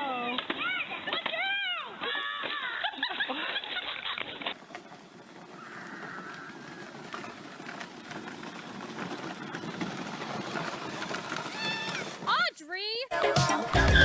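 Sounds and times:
plastic wheels crunching on gravel: 0.0 - 12.6.

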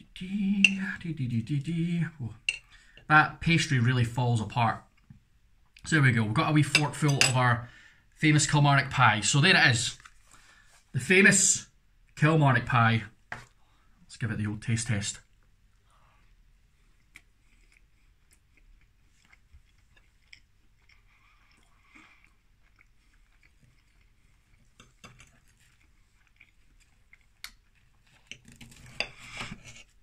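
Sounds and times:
person chewing food: 15.4 - 30.0.

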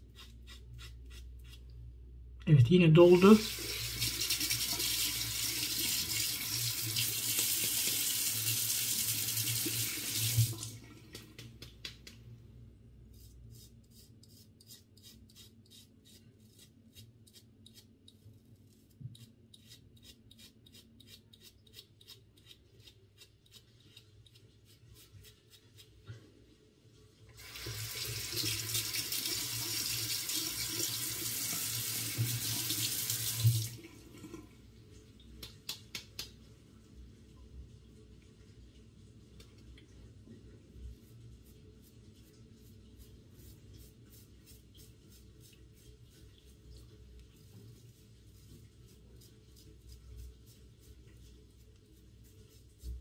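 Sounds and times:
tap water running into sink: 3.4 - 11.5, 27.4 - 34.4.

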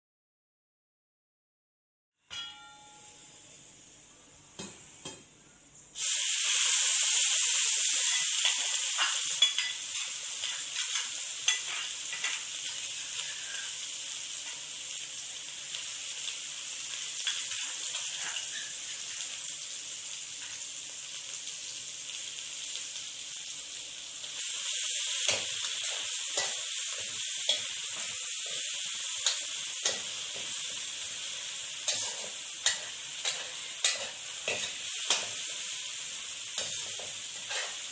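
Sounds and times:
hot oil sizzling in wok: 2.4 - 5.3, 6.0 - 37.9
metal spatula scraping wok: 8.0 - 13.8, 17.2 - 19.0, 25.2 - 35.8, 36.5 - 37.9.

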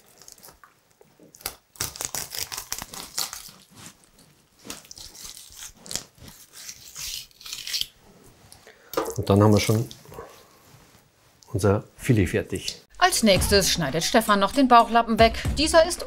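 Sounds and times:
knife crunching through fish bones: 0.0 - 3.7, 4.6 - 8.0.

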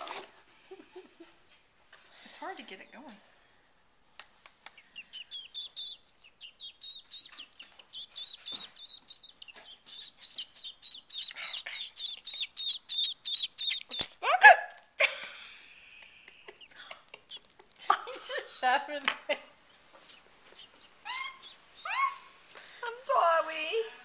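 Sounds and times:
nestling begging chirps: 4.7 - 14.2, 19.7 - 22.4.

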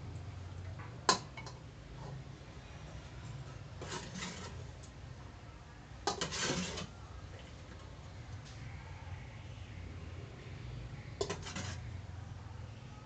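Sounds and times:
metal ladle scraping a pot: 3.8 - 4.7, 6.1 - 6.9, 11.2 - 11.9.

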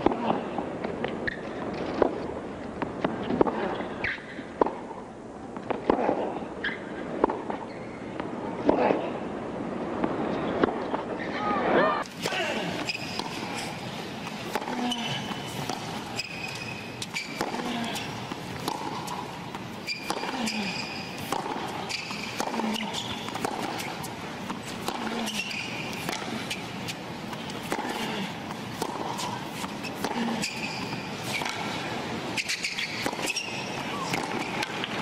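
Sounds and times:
ball bouncing: 12.0 - 31.8, 32.4 - 35.0
racquets striking tennis ball: 12.0 - 35.0.

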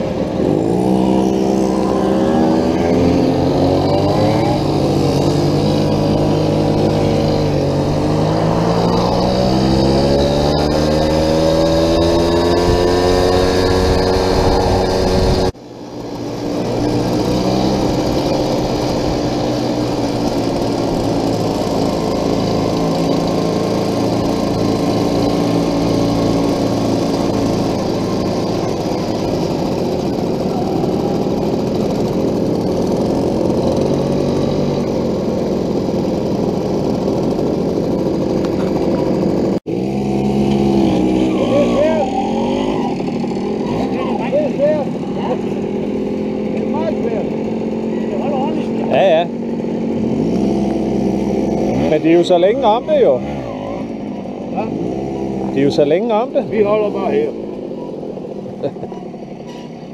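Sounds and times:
two-stroke moped engine: 0.0 - 59.9.

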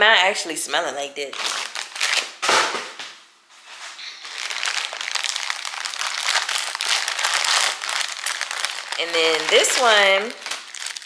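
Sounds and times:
plastic mailer bag crinkling: 1.3 - 2.3, 4.0 - 11.0.

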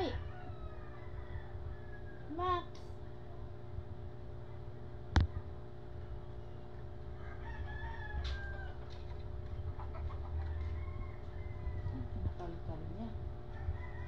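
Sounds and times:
rooster crowing: 0.0 - 2.3, 7.2 - 9.0, 10.3 - 12.2, 13.5 - 14.0
low steady hum: 0.0 - 14.0.

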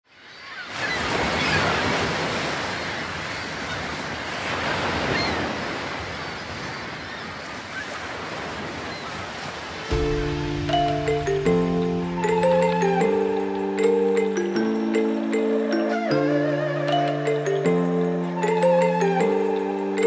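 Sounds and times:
sea waves washing: 0.6 - 20.0
marimba music: 9.9 - 20.0.

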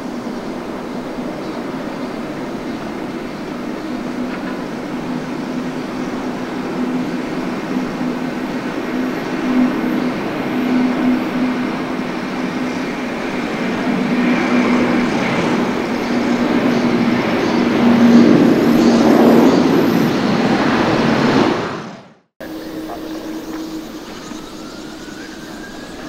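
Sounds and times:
jet engines roaring: 0.0 - 26.0
faint high whine: 22.4 - 26.0.

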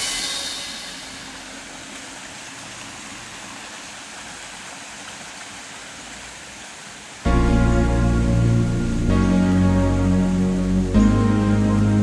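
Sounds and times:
stream water flowing: 0.0 - 12.0.

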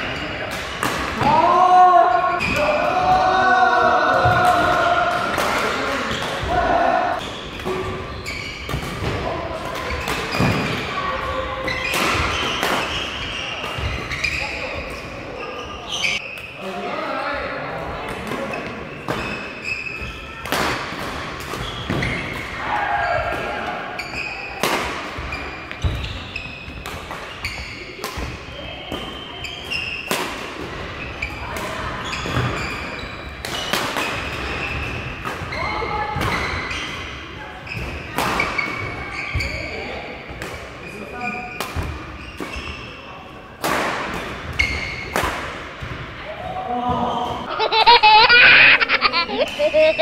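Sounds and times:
shoes squeaking on court floor: 7.2 - 9.1, 9.7 - 16.6, 18.4 - 20.4, 21.5 - 23.3, 23.9 - 28.0, 28.7 - 30.1, 31.0 - 39.8, 40.8 - 43.2, 44.4 - 45.2, 47.0 - 50.0.

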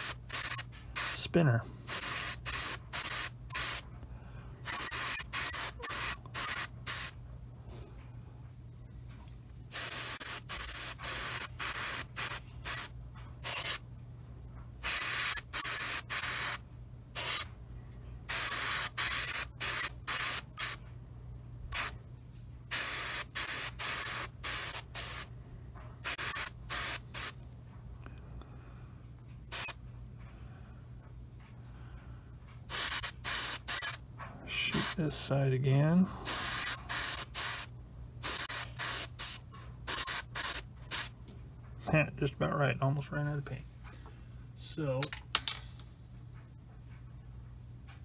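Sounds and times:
airbrush spraying hiss: 0.0 - 1.3, 1.9 - 3.8, 4.6 - 7.2, 9.7 - 13.8, 14.8 - 16.6, 17.2 - 17.5, 18.3 - 20.8, 22.7 - 25.3, 26.0 - 27.4, 32.7 - 34.0, 34.7 - 35.0, 36.3 - 41.1
steady low hum: 0.0 - 48.0.

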